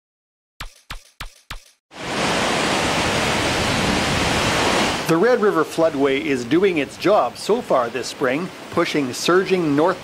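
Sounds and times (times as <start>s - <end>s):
sharp percussive hits: 0.6s - 1.8s
water rushing: 1.9s - 10.0s.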